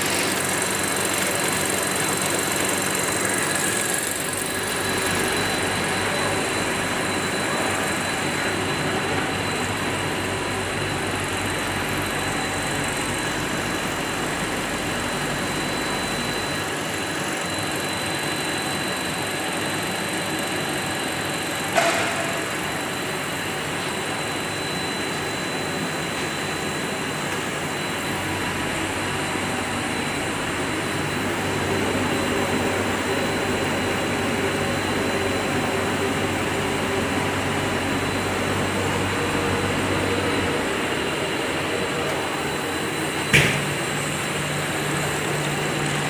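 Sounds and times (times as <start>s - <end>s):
high machine whine: 0.0s - 46.0s
production line machinery hum: 0.0s - 46.0s
sharp metal clank: 21.7s - 22.5s.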